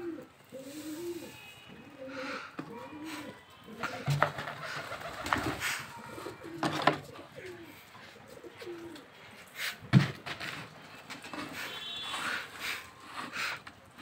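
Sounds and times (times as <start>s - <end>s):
pigeons cooing: 0.0s - 9.3s.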